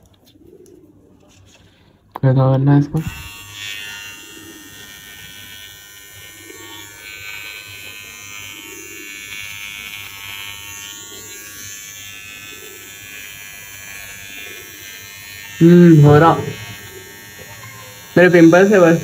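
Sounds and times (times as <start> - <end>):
beard trimmer electric buzz: 3.0 - 19.0
trimmer blades hissing on stubble: 3.1 - 19.0.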